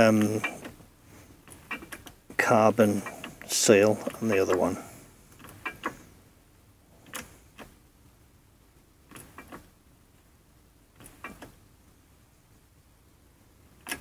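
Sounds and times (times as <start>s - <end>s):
shop press clicks and creaks: 1.5s - 2.2s, 5.4s - 6.0s, 9.1s - 9.7s, 11.0s - 11.6s.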